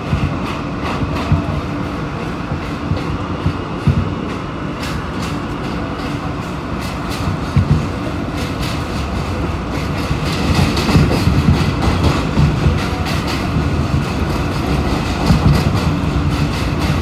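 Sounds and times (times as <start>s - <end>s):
clacks from the track: 0.0s - 17.0s
wheel-on-rail rumble: 0.0s - 17.0s.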